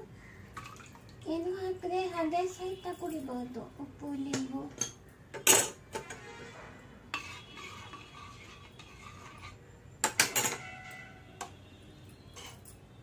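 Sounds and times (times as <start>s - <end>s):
crockery and cutlery clinking: 4.3s - 6.2s, 10.0s - 11.0s, 12.3s - 12.8s.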